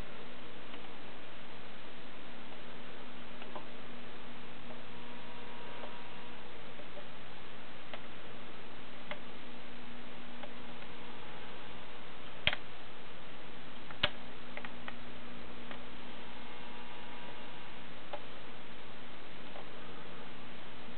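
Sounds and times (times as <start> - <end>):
steady hiss and hum: 0.0 - 20.9
sharp clicks: 12.4 - 12.7.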